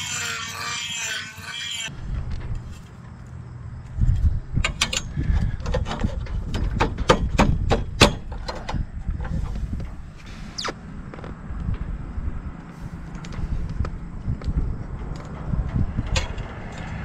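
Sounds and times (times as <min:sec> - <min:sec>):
low rumble: 0:08.6 - 0:17.0.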